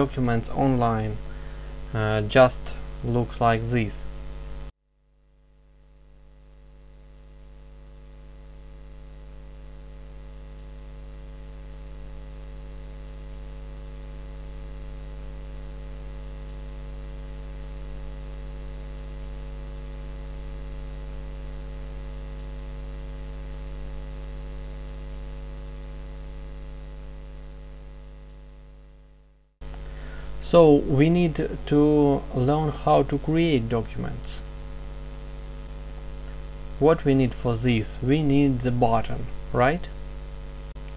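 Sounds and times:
electrical mains hum: 0.0 - 40.9.

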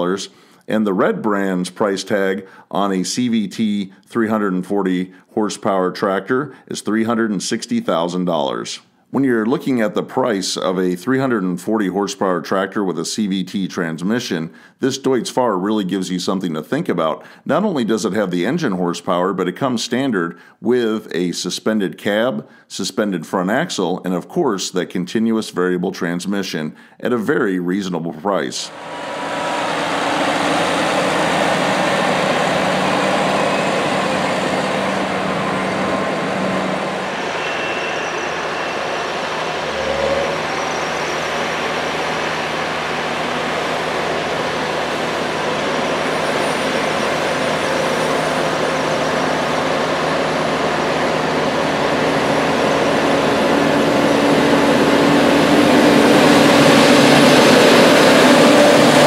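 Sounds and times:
tractor diesel engine under load: 28.7 - 37.4, 38.8 - 59.0.

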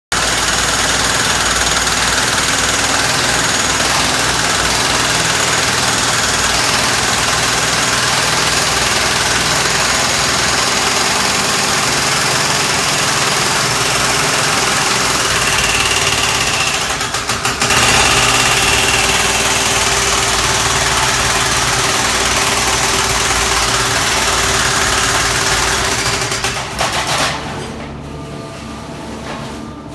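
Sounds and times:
hydraulic breaker hammering concrete: 0.1 - 27.5.

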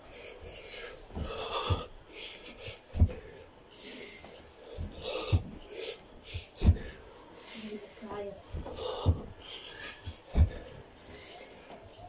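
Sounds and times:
man breathing hard and wheezing: 0.0 - 12.0
dull thuds on carpeted floor: 1.1 - 2.0, 2.9 - 3.4, 4.7 - 5.6, 6.4 - 7.0, 8.1 - 10.8.

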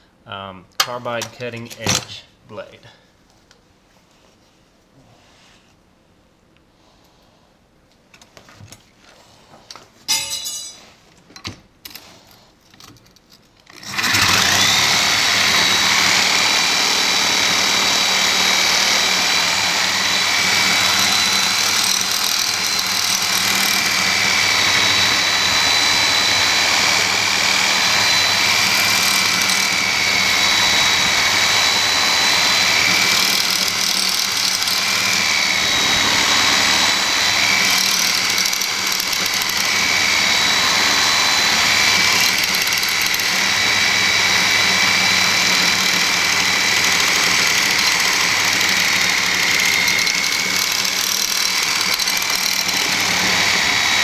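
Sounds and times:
reciprocating saw cutting concrete block: 13.8 - 54.0.

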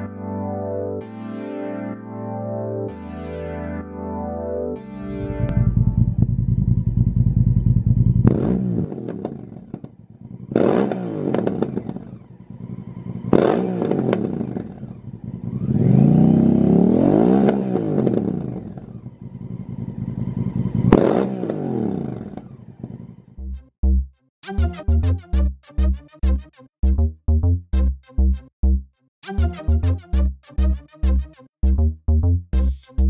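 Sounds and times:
motorcycle engine revving: 5.2 - 23.4.

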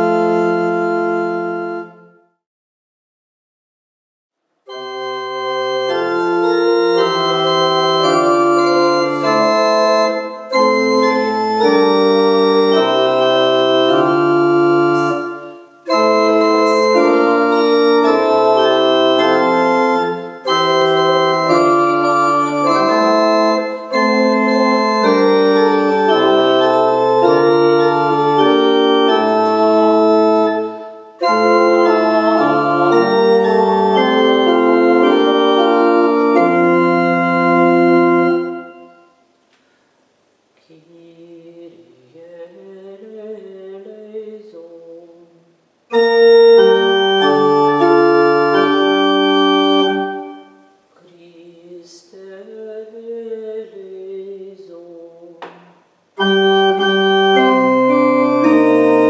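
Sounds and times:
church pipe organ chords: 0.0 - 2.2, 4.7 - 39.3, 45.9 - 50.8, 56.2 - 59.0.

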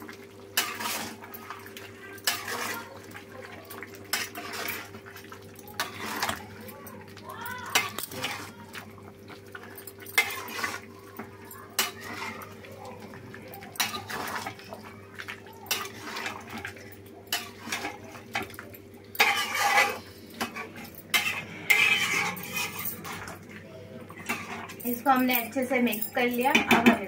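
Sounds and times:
metal spatula scraping a metal pan: 0.6 - 1.2, 2.2 - 2.9, 19.2 - 23.2.

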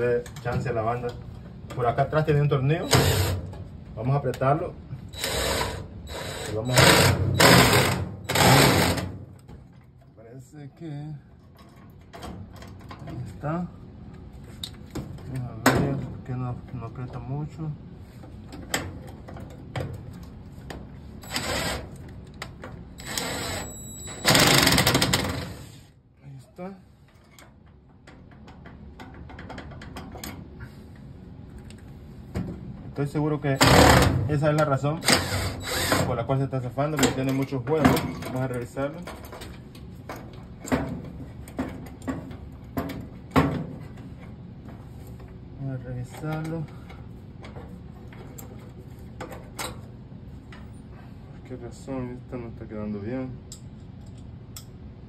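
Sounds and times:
short rattling bursts: 5.2 - 9.2, 24.2 - 25.9.

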